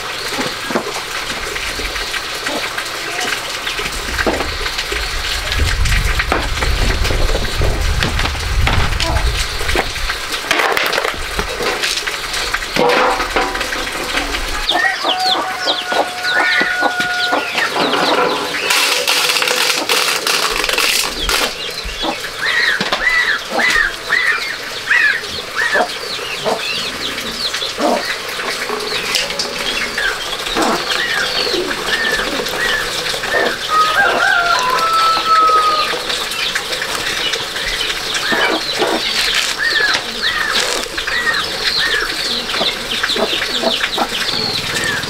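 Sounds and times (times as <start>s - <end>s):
knocks and clatter: 3.8s - 14.7s
chickens clucking: 8.8s - 45.0s
birds chirping: 11.5s - 19.1s, 20.7s - 45.0s.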